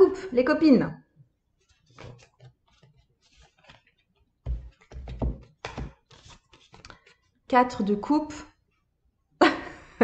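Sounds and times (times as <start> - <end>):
cards clicking and rustling: 1.6 - 7.3
dull thumps on table: 4.4 - 6.0.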